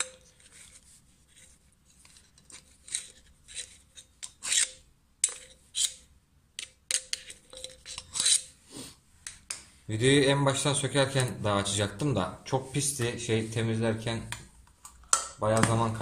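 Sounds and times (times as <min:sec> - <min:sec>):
screwdriver scraping metal: 0:01.4 - 0:08.6.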